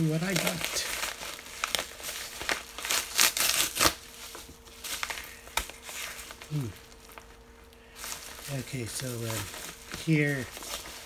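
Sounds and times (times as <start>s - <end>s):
envelope tearing and crinkling: 0.0s - 11.0s.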